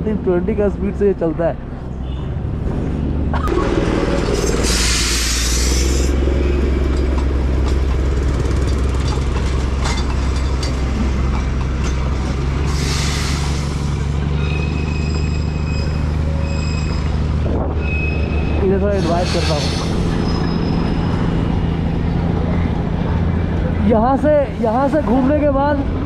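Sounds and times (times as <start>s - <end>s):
scooter engine drone: 3.3s - 4.4s.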